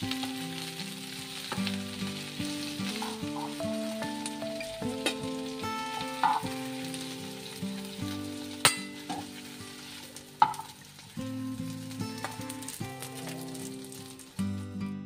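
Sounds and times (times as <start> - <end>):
instrumental background music: 0.0 - 15.0
light sizzling: 0.0 - 15.0
metal spatula clinking on pan: 8.6 - 9.3.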